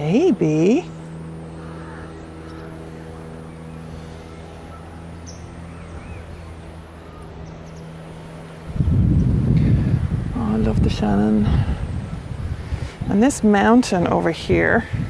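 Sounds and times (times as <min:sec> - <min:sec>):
small birds chirping: 0:00.0 - 0:09.6
steady low hum: 0:00.0 - 0:15.0.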